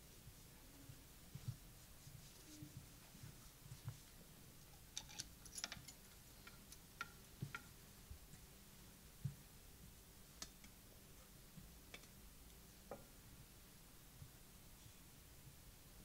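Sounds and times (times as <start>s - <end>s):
faint clicks and light knocks: 0.9s - 8.5s, 9.2s - 10.8s, 11.5s - 13.1s.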